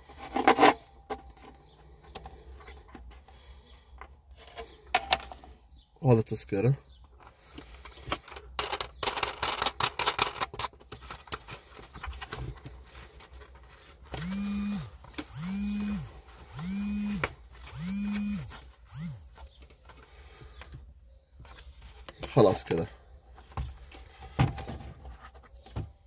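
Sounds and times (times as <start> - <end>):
plastic clicking and scraping: 7.0 - 20.8
low buzzing pulses: 14.2 - 19.3.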